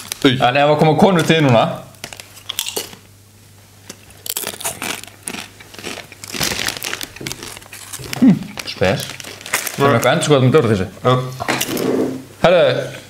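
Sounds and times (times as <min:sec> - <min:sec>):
chip bag crinkling: 0:00.0 - 0:03.1, 0:03.8 - 0:10.8
chips crunching when chewed: 0:02.0 - 0:03.0, 0:03.8 - 0:10.4.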